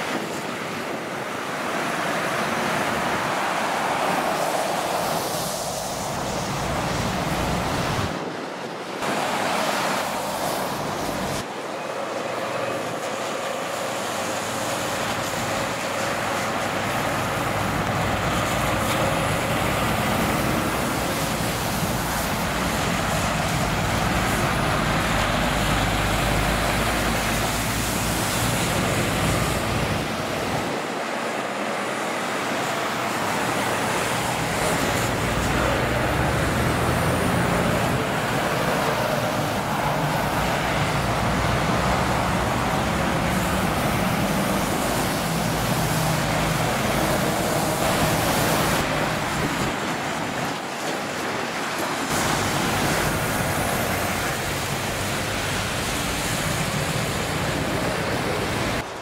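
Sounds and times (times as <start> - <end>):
motorway traffic: 0.0 - 59.0
deep rumble of heavy vehicles: 10.7 - 30.8, 32.7 - 49.8.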